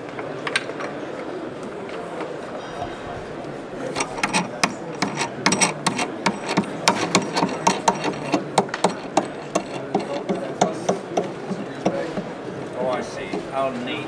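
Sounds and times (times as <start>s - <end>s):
knob clicking as twisted: 4.0s - 10.4s.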